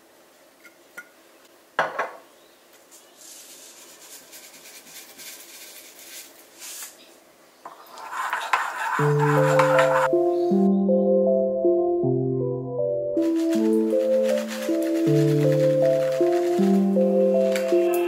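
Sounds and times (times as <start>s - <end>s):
seeds pattering into ceramic bowl: 13.2s - 18.0s.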